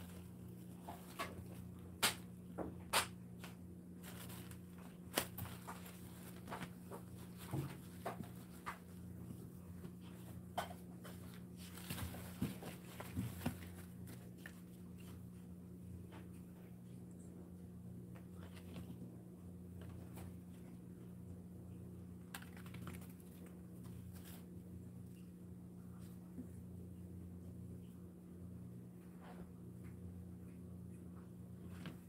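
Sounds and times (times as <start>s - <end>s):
steady low hum: 0.0s - 32.0s
puppies scuffling: 4.0s - 15.3s.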